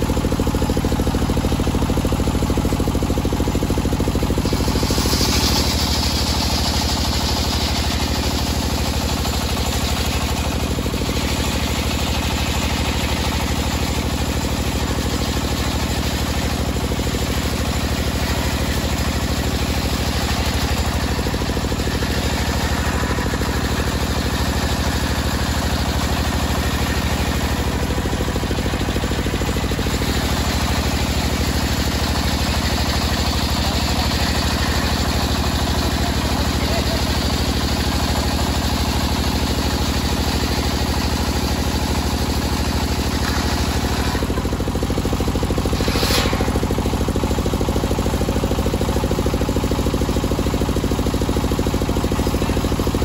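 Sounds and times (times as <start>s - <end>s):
circular saw motor running: 0.0s - 53.0s
saw cutting hiss: 45.7s - 46.7s.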